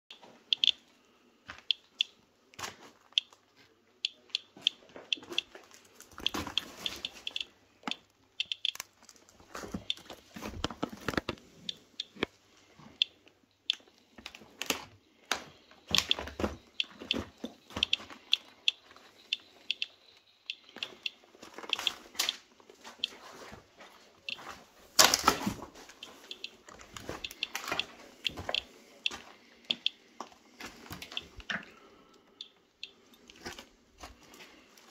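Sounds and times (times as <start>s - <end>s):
geiger counter ticking: 0.5s - 0.8s, 6.2s - 8.8s, 11.7s - 12.2s, 13.0s - 13.8s, 15.9s - 22.4s, 26.0s - 30.0s, 31.0s - 31.5s, 32.2s - 33.0s.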